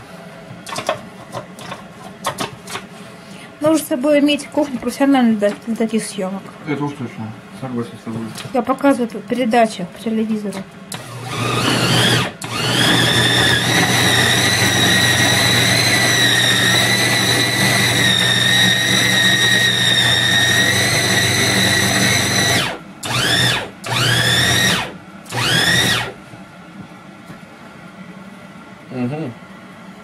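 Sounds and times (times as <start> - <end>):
electric food chopper whining: 10.9 - 26.2.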